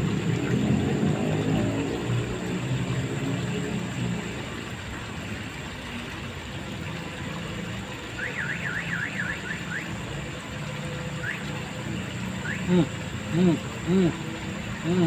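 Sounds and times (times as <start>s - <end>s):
water flowing in a ditch: 0.0s - 15.0s.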